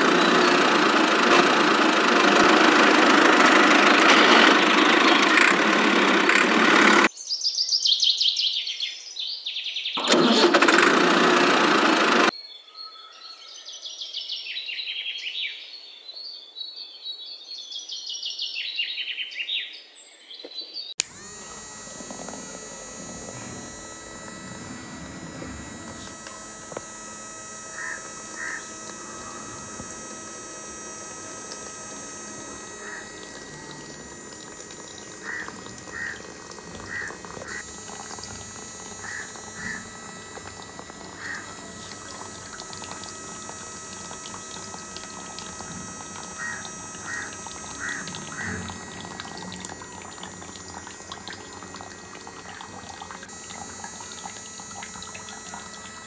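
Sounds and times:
faint steady pump whine: 0:00.0 - 0:07.1, 0:10.0 - 0:12.3, 0:21.0 - 0:56.0
water pouring into a tub: 0:21.1 - 0:56.0.

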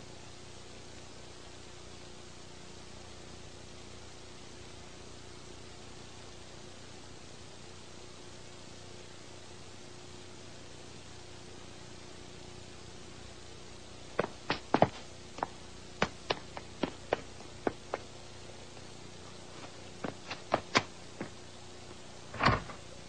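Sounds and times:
faint hiss: 0:00.0 - 0:23.0
heavy thump: 0:22.3 - 0:22.8.

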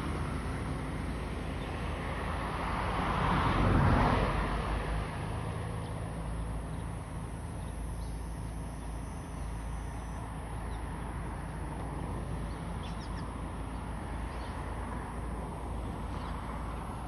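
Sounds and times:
faint bird chirps: 0:12.5 - 0:13.4.

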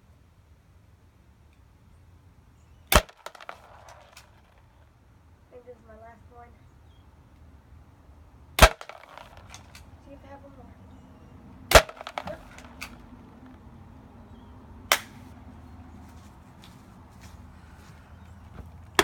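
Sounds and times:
air pistol shots: 0:02.9 - 0:04.4, 0:08.6 - 0:09.9, 0:11.7 - 0:13.1, 0:14.9 - 0:15.2.

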